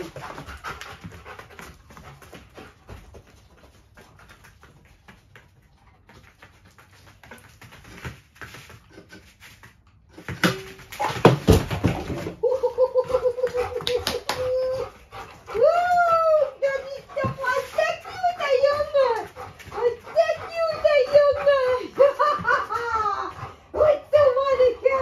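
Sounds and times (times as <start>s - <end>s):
dog sniffing and panting: 0.0s - 10.1s, 13.1s - 25.0s
boxes knocking and scraping: 10.3s - 12.4s.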